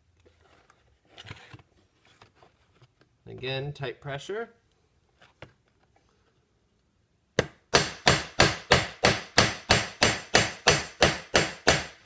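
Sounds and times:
hammer striking metal rivets: 7.4 - 12.0.

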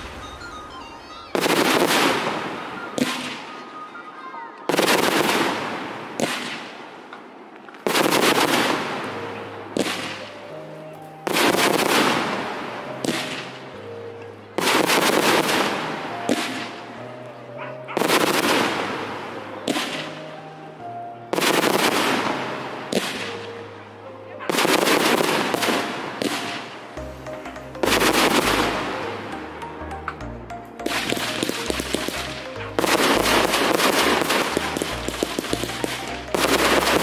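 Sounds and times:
music with low held notes: 25.4 - 37.0
firework shells bursting: 30.1 - 37.0.

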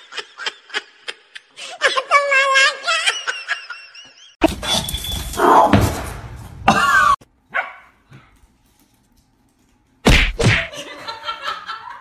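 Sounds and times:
people laughing: 0.0 - 1.6, 2.4 - 4.4, 10.7 - 12.0
dog barking: 7.5 - 8.0.

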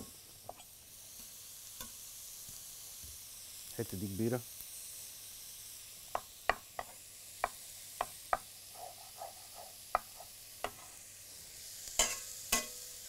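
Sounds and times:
onions sizzling in pan: 0.0 - 13.0
cooking utensil knocking: 12.0 - 12.7.

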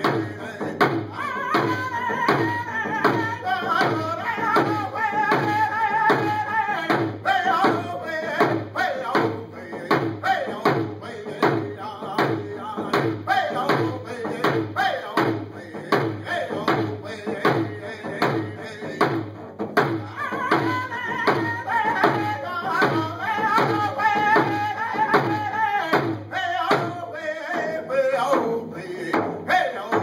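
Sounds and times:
man singing high-pitched: 0.0 - 19.2, 19.9 - 30.0
hand drum beat: 0.0 - 30.0.

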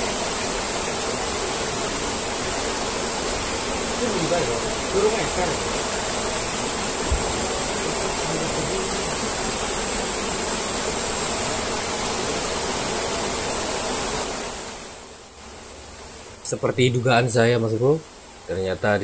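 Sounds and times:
river water rushing: 0.0 - 15.1.

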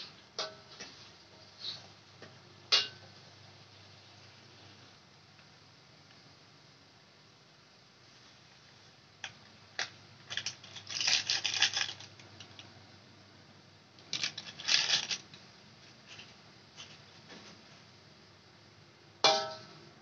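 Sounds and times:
plastic sachet crinkling: 10.2 - 12.6, 14.1 - 15.4.

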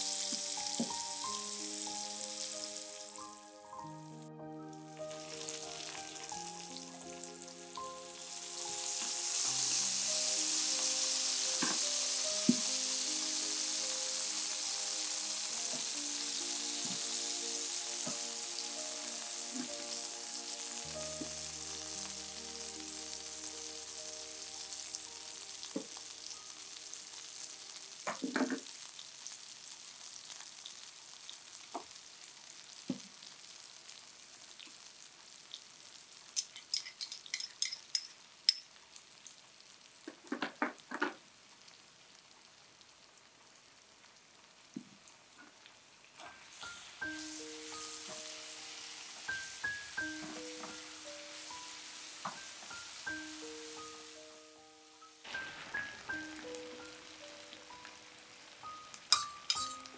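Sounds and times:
onions sizzling in a frying pan: 0.0 - 59.9
metal spoon clinking on pan: 36.4 - 38.7, 59.0 - 59.9.

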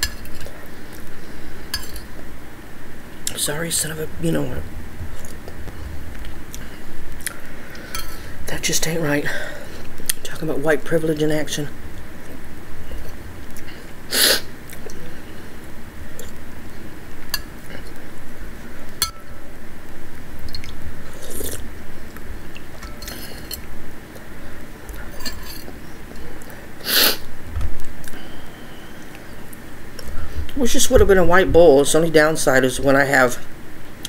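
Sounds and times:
metal spoon clinking bowl: 1.7 - 2.1
person chewing: 5.1 - 8.3, 12.2 - 14.0, 20.5 - 24.3, 28.0 - 28.3.

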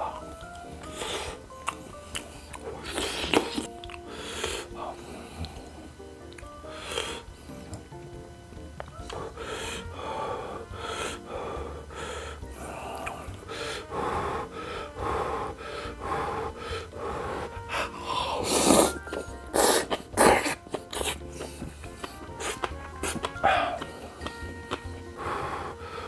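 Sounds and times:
noodles slurping: 0.0 - 7.4, 8.8 - 26.0
wet chewing: 0.0 - 7.8, 8.8 - 9.3, 12.6 - 13.6, 16.5 - 25.2.

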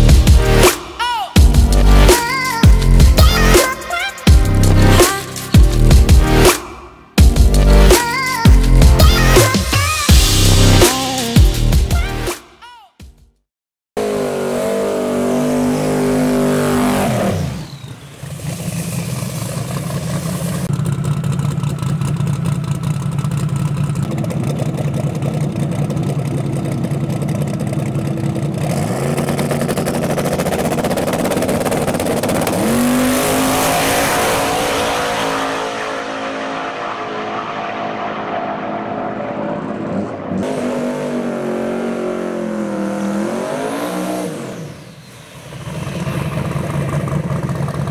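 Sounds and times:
drag racing engine revving: 14.0 - 47.9.

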